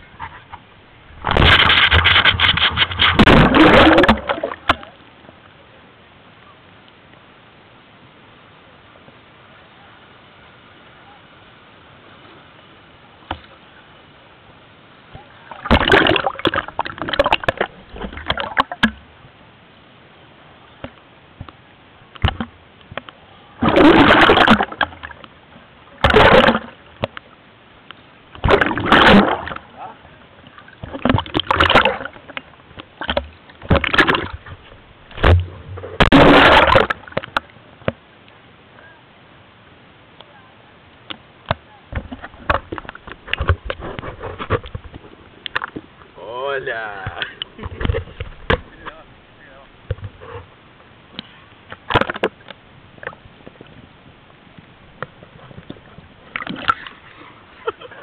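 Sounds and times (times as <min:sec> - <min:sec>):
water splashing and sloshing: 0:00.0 - 0:05.5, 0:14.9 - 0:19.4, 0:20.8 - 0:38.1, 0:41.0 - 0:58.0.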